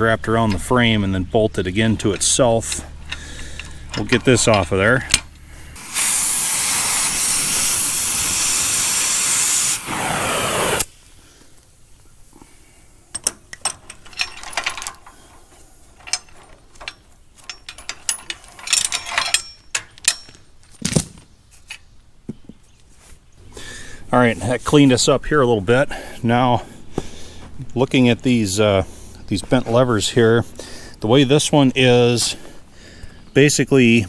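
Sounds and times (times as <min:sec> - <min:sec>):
cutting torch hissing: 0:05.8 - 0:11.0
metal chain clinking and knocking: 0:13.1 - 0:21.8.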